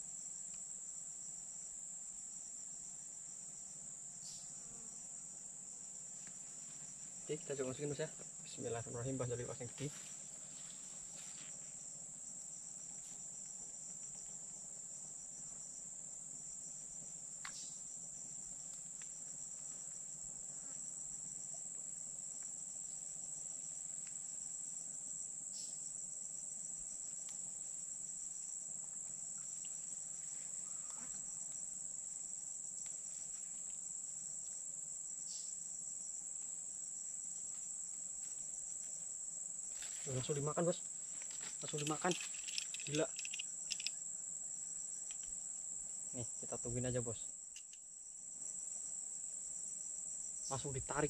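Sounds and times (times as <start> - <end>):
high-pitched insect chorus: 0.0 - 51.0
faint clicks: 41.6 - 44.0.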